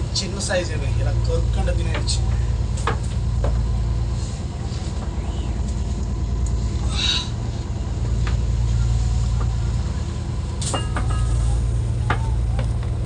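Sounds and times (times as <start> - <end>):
boat engine droning: 0.0 - 13.0
knocks and clicks of fish handling: 2.8 - 3.7.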